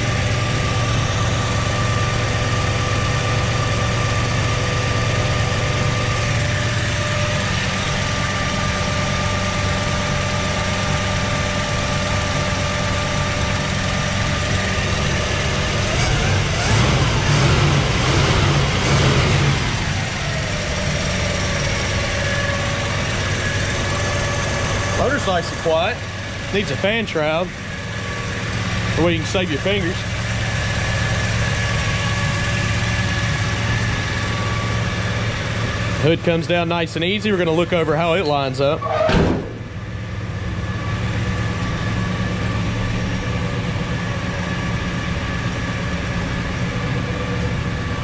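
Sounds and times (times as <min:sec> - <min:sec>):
car engine idling: 0:00.0 - 0:48.0.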